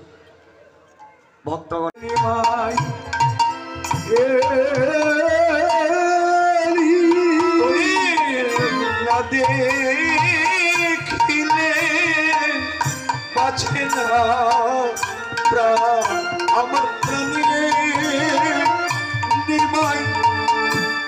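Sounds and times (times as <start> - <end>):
person singing ornamented melody: 1.9 - 21.0.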